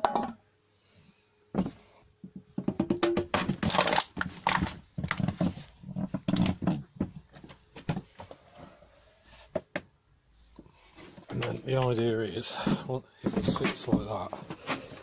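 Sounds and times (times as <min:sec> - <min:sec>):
wooden knocks and clatters: 0:01.6 - 0:08.3, 0:13.2 - 0:14.9.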